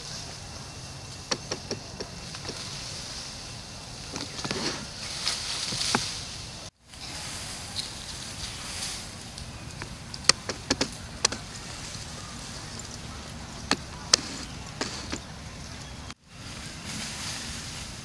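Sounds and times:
steady hiss: 0.0s - 18.0s
sharp clicks and snaps: 9.4s - 11.4s.

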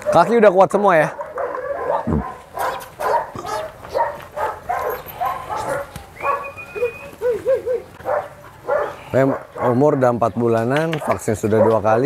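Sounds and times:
puppies barking: 0.0s - 12.0s
puppies whining yips: 1.7s - 9.7s.

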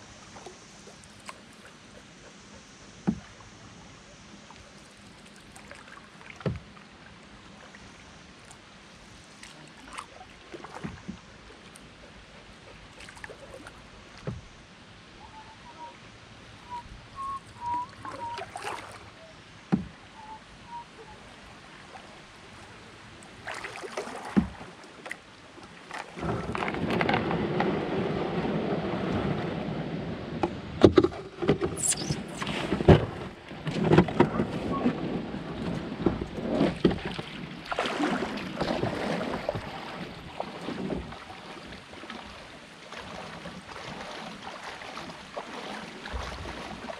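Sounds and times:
quiet flowing water: 0.0s - 46.9s
knocks and splashes: 5.4s - 6.8s, 9.4s - 11.3s, 12.9s - 14.5s, 17.2s - 19.1s, 19.7s - 20.0s, 23.4s - 29.7s, 30.3s - 46.9s
faint bird chirps: 15.2s - 16.0s, 16.6s - 18.5s, 20.1s - 21.3s, 31.8s - 32.4s
canoe hull scraping over gravel: 26.0s - 29.8s.

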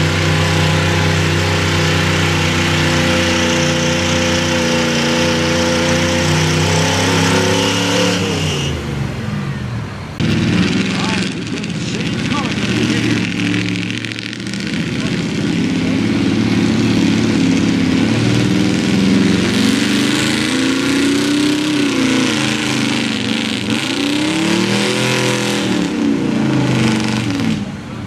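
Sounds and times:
truck engine working hard: 0.0s - 28.0s.

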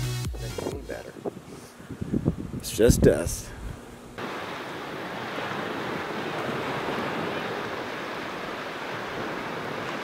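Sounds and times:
wind on the microphone: 0.5s - 10.0s
waves breaking on a beach: 4.2s - 10.0s.

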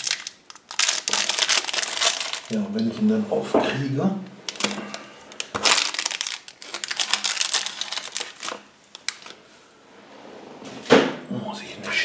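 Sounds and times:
plastic wrapper crinkling: 0.0s - 3.1s, 4.4s - 9.4s.

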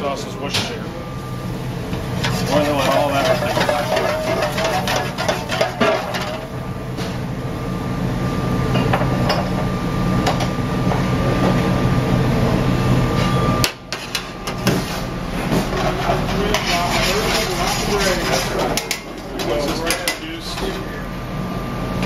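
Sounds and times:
sauce boiling and sizzling in pan: 1.8s - 6.8s
pan knocking against grate: 2.2s - 6.4s.

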